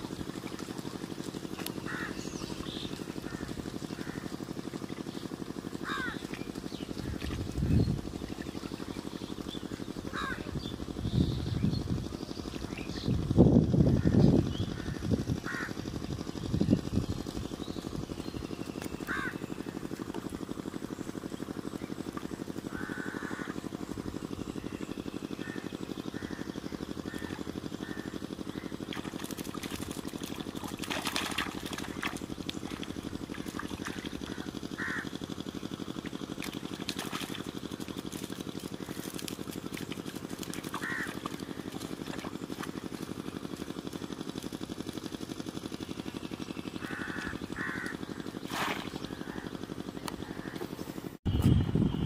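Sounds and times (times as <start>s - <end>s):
water sloshing and splashing: 0.0s - 10.2s, 27.1s - 51.1s
birds calling: 0.0s - 52.0s
steady low hum: 0.0s - 52.0s.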